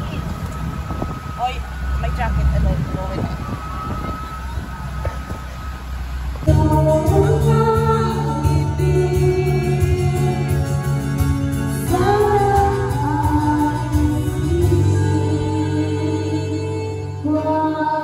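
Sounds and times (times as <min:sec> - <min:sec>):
karaoke singing over loudspeakers: 0:06.4 - 0:18.0.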